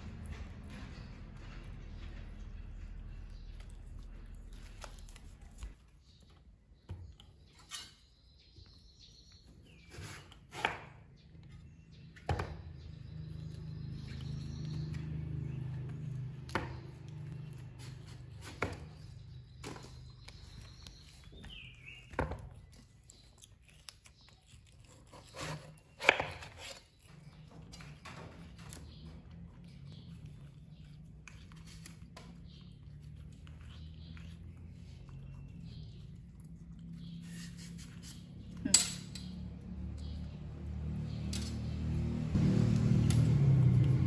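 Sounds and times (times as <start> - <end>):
monkey crunching gourd: 12.6 - 38.8.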